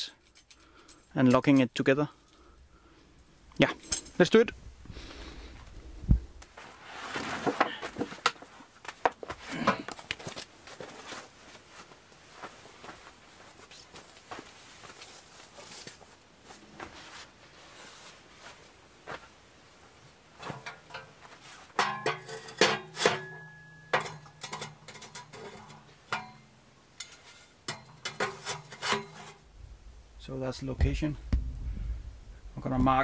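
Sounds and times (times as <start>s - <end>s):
metal pipes clanking and scraping: 20.4s - 29.5s.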